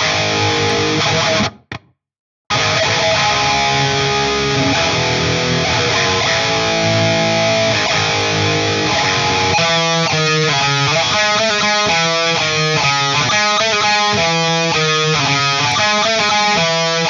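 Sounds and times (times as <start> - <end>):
distorted electric guitar: 0.0 - 1.9, 2.5 - 17.0.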